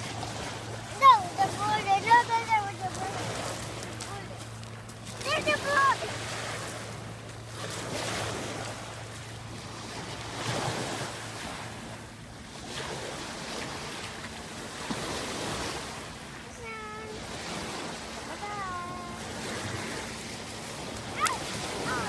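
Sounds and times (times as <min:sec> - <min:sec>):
child's voice: 0:00.9 - 0:03.4, 0:04.0 - 0:04.4, 0:05.2 - 0:06.2, 0:16.4 - 0:17.2, 0:18.3 - 0:19.2, 0:21.1 - 0:22.0
waves washing onto pebbles: 0:17.2 - 0:22.0.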